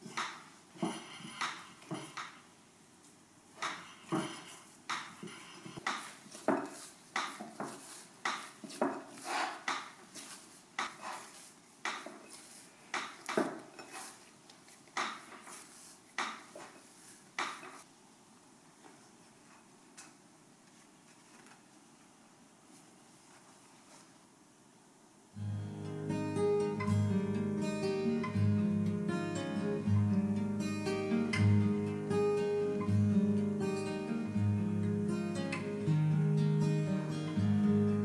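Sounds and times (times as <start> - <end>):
dough slapping against bowl: 5.8 - 12.3.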